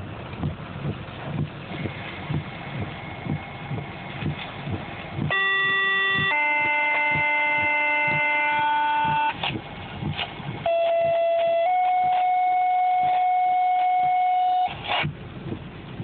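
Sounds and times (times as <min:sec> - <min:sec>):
storm noise: 0:00.0 - 0:11.4
soft regular thumps: 0:00.0 - 0:16.0
two-tone radio page: 0:01.4 - 0:09.6.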